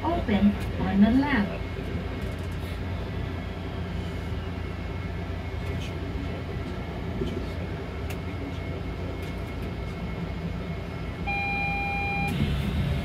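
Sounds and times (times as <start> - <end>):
train hum and rumble: 0.0 - 13.0
electronic beep: 11.3 - 12.4.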